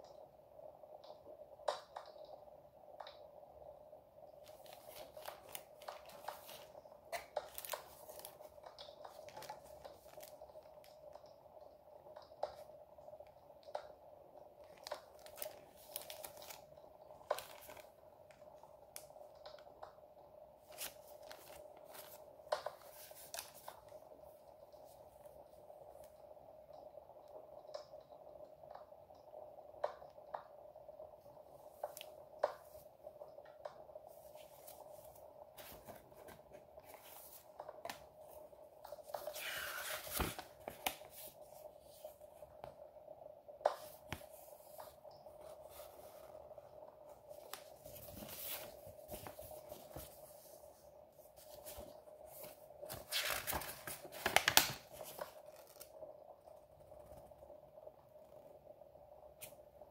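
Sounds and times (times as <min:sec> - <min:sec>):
paper and plastic rustling: 0:04.4 - 0:10.5, 0:14.7 - 0:18.0, 0:20.6 - 0:24.0, 0:34.2 - 0:42.1, 0:47.3 - 0:50.8, 0:51.4 - 0:55.9.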